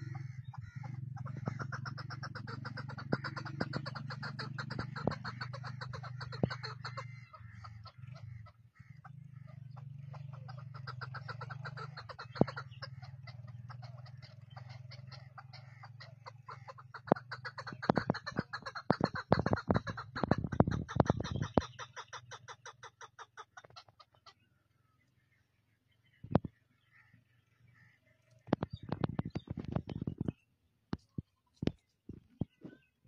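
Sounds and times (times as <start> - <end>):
steady low hum: 0.0 - 11.6
partridge chattering call: 0.0 - 33.0.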